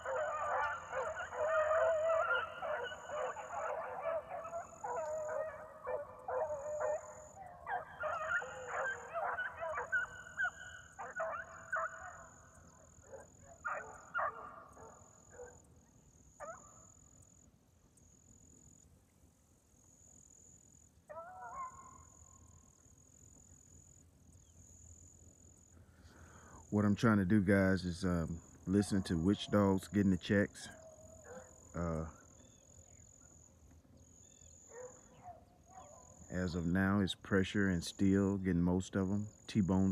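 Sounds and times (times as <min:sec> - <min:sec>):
beagles baying: 0:00.0 - 0:15.7, 0:16.3 - 0:17.0, 0:21.1 - 0:22.2, 0:27.7 - 0:33.4, 0:34.2 - 0:36.9
insects trilling: 0:00.0 - 0:18.9, 0:19.6 - 0:39.9.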